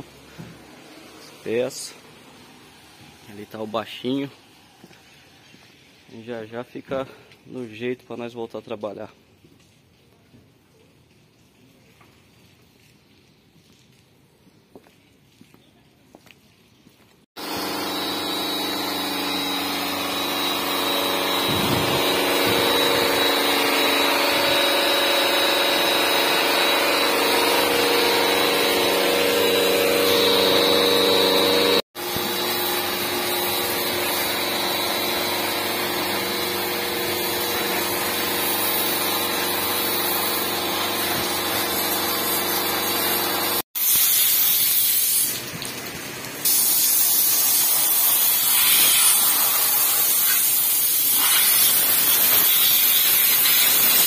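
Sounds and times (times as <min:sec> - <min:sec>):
pressure washer motor hum: 0:00.0 - 0:06.1, 0:17.4 - 0:54.0
water jet spraying on metal: 0:17.4 - 0:54.0.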